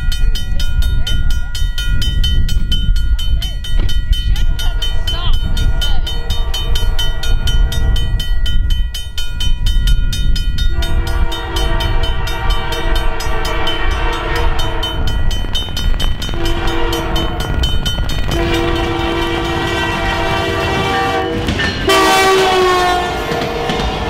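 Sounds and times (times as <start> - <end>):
railroad crossing bell dinging: 0.0 - 24.0
train rumbling: 0.0 - 24.0
train air horn: 10.7 - 15.2, 16.4 - 17.6, 18.3 - 24.0.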